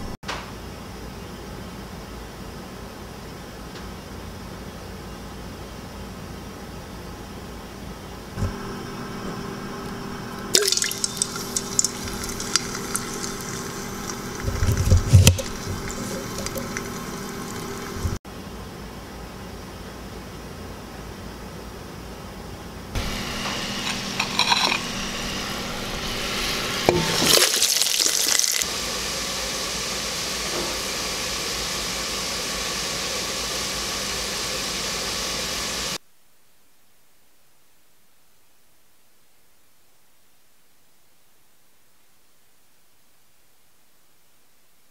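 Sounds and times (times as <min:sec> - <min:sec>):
steady low hum: 0:08.2 - 0:18.2, 0:22.6 - 0:27.4
oil crackling in a pot: 0:08.6 - 0:18.2, 0:23.0 - 0:28.7.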